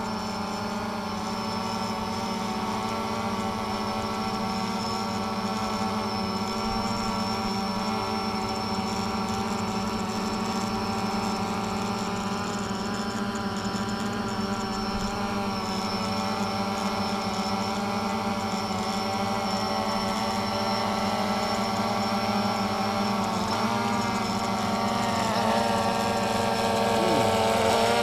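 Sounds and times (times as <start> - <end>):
drone hovering buzz: 0.0 - 28.0
person talking: 26.8 - 27.9.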